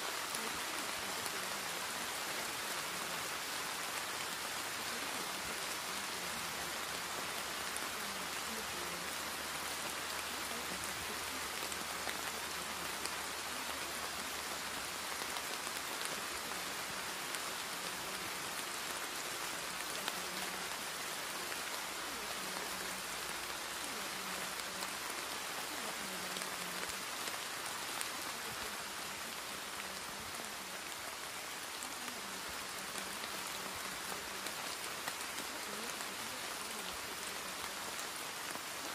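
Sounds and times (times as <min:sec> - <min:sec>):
steady rain hiss: 0:00.0 - 0:38.9.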